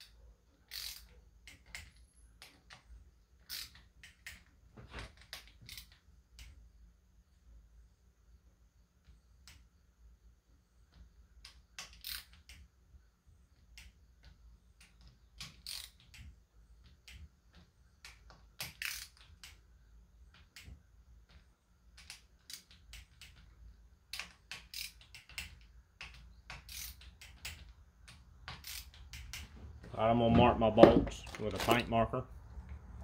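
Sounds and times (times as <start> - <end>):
ratchet wrench clicking: 0.7 - 2.8, 3.4 - 4.5, 5.3 - 6.6, 11.4 - 12.7, 14.8 - 16.2, 18.0 - 19.6, 24.1 - 29.5.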